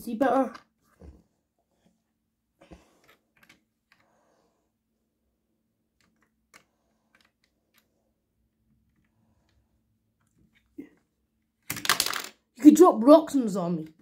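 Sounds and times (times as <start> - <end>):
plastic toy bricks clicking: 6.0 - 7.8, 11.6 - 12.4.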